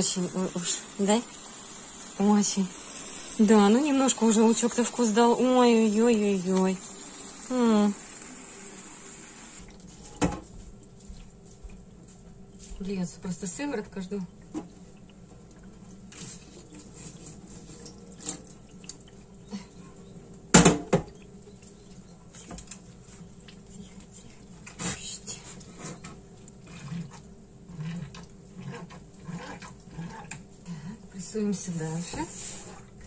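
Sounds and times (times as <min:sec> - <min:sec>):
whey trickling and dripping: 0:00.0 - 0:10.0, 0:10.7 - 0:24.8.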